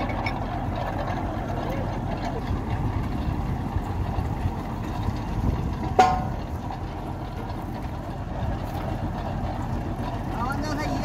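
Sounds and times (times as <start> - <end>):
boring rig engine running: 0.0 - 11.0
sharp metal clank: 6.0 - 6.4.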